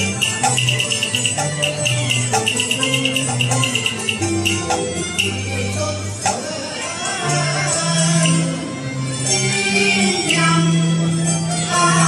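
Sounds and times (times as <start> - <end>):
fast high ticking pattern: 0.0 - 5.4
low stepping melody: 0.0 - 6.6
opera accompaniment band: 0.0 - 12.0.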